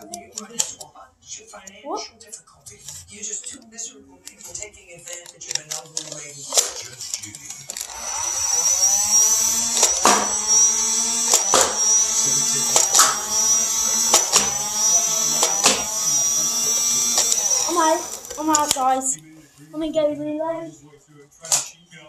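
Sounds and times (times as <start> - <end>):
toy blaster motor whirring: 5.4 - 19.0
sharp click: 12.8 - 13.3.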